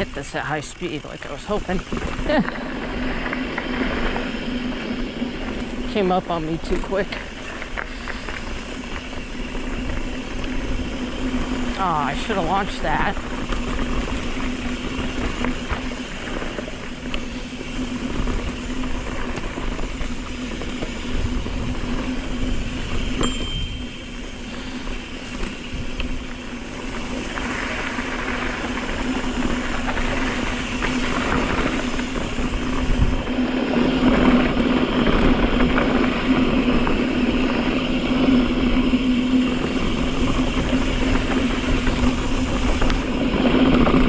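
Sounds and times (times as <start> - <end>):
bike tyres rolling on dirt and rock: 0.0 - 44.0
wind rushing over microphone: 0.0 - 44.0.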